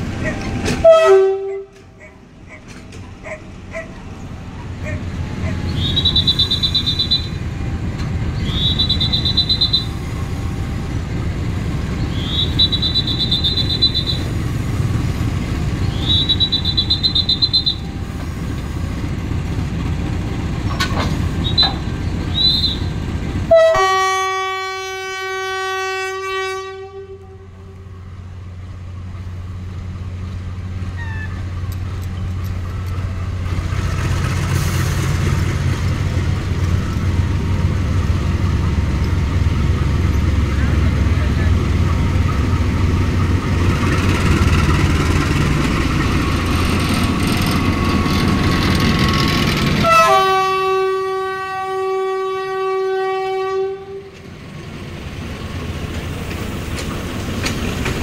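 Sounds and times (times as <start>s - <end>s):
diesel locomotive engine rumbling: 0.0s - 58.0s
train horn blast: 0.3s - 2.1s, 22.5s - 27.9s, 49.8s - 54.2s.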